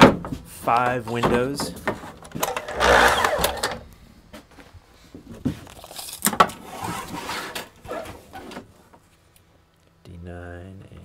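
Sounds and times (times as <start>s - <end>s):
wood clacking and scraping: 1.1s - 3.8s.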